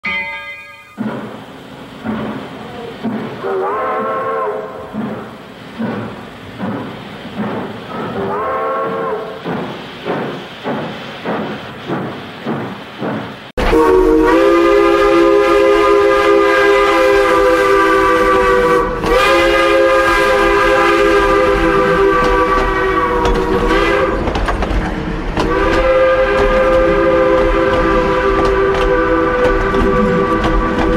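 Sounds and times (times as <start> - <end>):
train whistle blasts: 3.4 - 5.0, 7.9 - 9.4, 13.6 - 24.3, 25.4 - 30.9.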